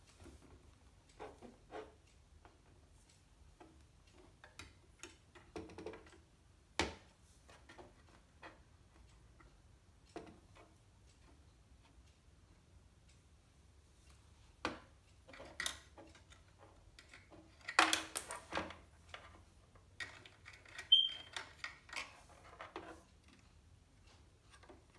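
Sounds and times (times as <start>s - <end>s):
high squeak-like tone: 20.9s - 21.4s.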